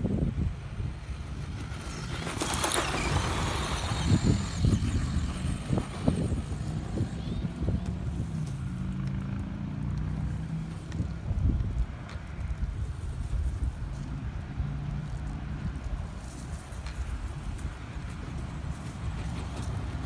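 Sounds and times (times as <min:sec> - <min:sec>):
wind rumbling on microphone: 0:00.0 - 0:20.0
rc truck motor: 0:01.1 - 0:09.2.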